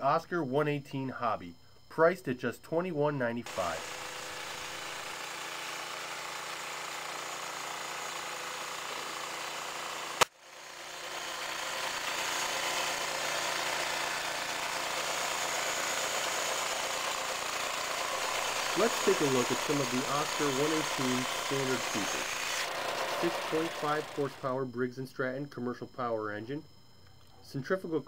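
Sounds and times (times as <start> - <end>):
band sawmill running: 3.4 - 24.6.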